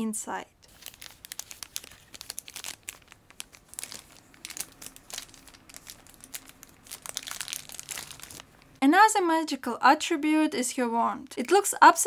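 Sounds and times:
plastic bag crinkling: 0.7 - 8.8.

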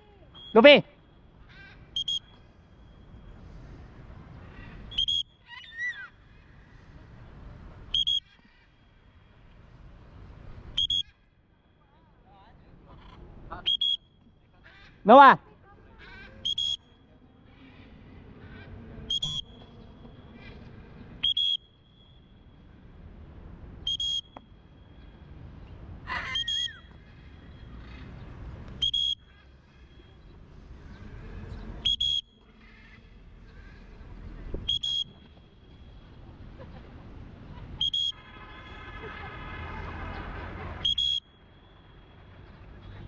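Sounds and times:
shrill whistle blasts: 2.0 - 2.4, 4.9 - 5.4, 7.9 - 8.3, 10.8 - 11.1, 13.7 - 14.1, 16.4 - 16.8, 19.1 - 19.6, 21.2 - 22.2, 23.8 - 24.4, 26.4 - 26.9, 28.8 - 29.2, 31.8 - 32.4, 34.7 - 35.2, 37.8 - 38.8, 40.8 - 41.4.

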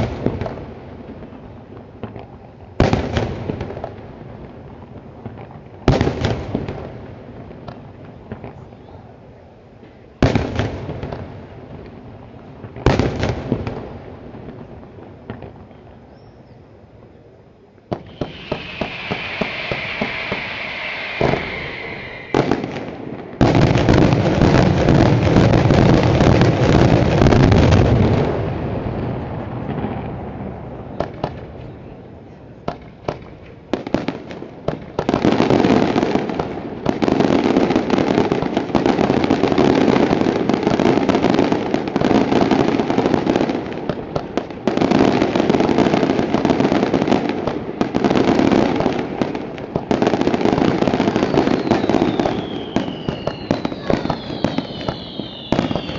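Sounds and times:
fireworks hissing: 17.9 - 26.2, 51.0 - 55.9
scattered firework cracks: 17.9 - 28.3, 50.8 - 55.9
rapid firework reports: 18.0 - 24.4, 51.6 - 55.9.

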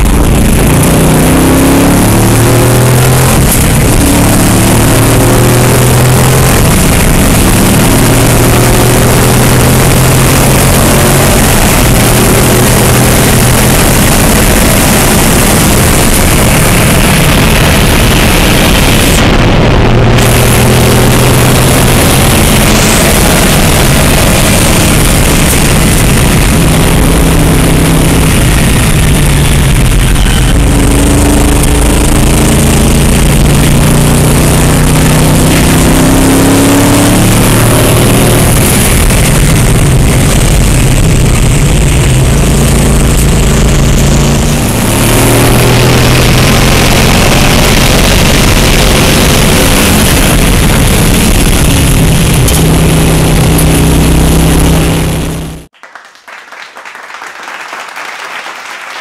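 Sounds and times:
engine revving through gears: 0.0 - 55.7
applause: 55.7 - 59.0.

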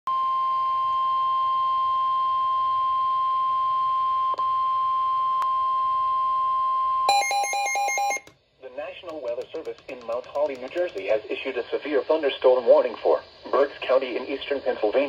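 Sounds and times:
weather radio alarm tone: 7.1 - 8.3.

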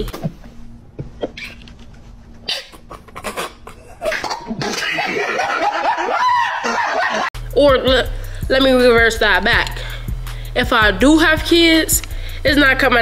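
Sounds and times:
man laughing: 2.6 - 7.3.

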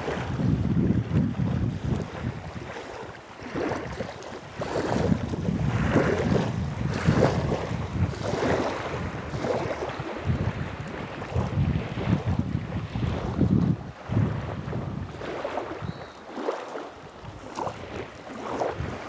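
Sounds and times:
waves lapping: 0.0 - 19.0
wind buffeting microphone: 0.0 - 19.0.

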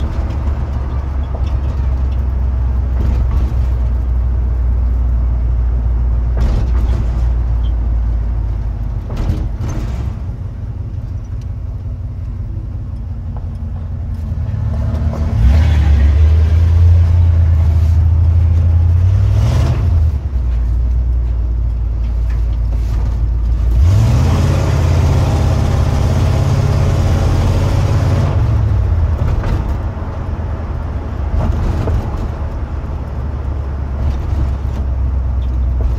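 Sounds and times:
truck engine revving: 14.1 - 20.4, 23.5 - 35.9.

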